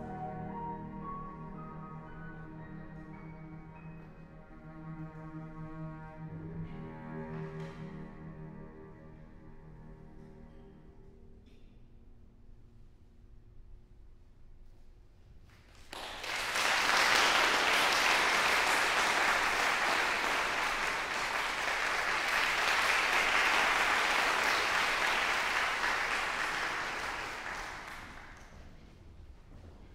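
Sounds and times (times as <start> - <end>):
audience applauding in a hall: 15.5 - 28.6.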